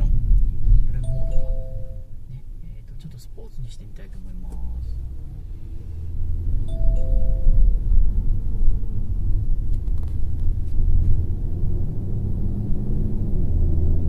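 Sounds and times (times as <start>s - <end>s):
car engine accelerating: 3.6s - 14.0s.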